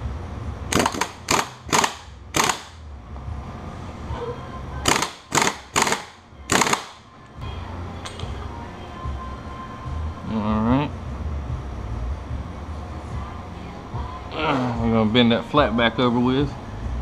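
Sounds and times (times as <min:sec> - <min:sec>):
impact wrench hammering: 0:00.7 - 0:02.8, 0:04.8 - 0:07.0.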